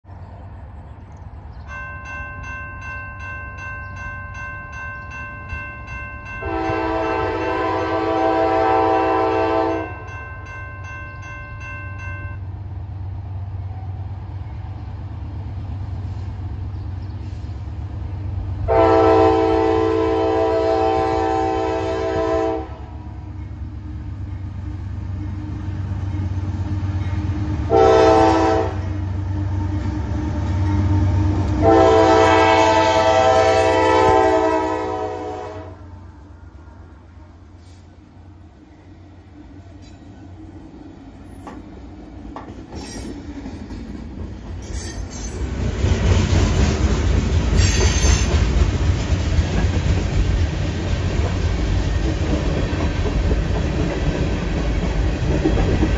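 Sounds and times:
crossing bell ringing: 0:01.5 - 0:12.6
locomotive horn blasts: 0:06.4 - 0:10.1, 0:18.7 - 0:23.1, 0:27.7 - 0:29.0, 0:31.6 - 0:36.0.

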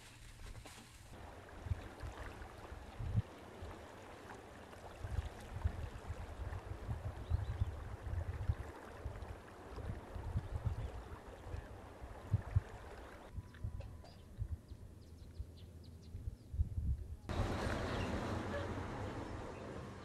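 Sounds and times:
wind buffeting microphone: 0:01.6 - 0:03.2, 0:05.0 - 0:18.4
river water rushing: 0:17.3 - 0:20.0.

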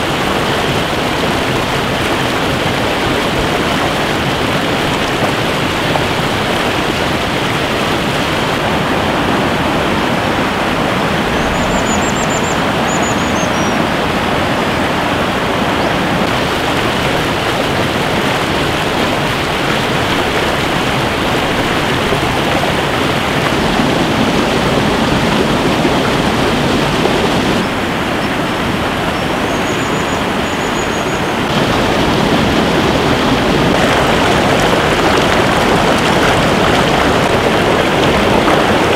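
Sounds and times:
whitewater stream rushing: 0:00.0 - 0:38.9
faint high bird chirps: 0:11.3 - 0:13.8, 0:29.2 - 0:31.4.

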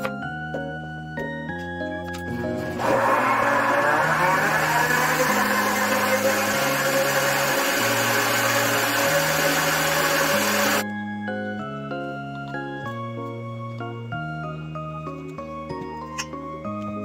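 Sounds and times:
soft background music: 0:00.0 - 0:03.8, 0:07.6 - 0:17.0
electric blender running: 0:02.3 - 0:10.8.

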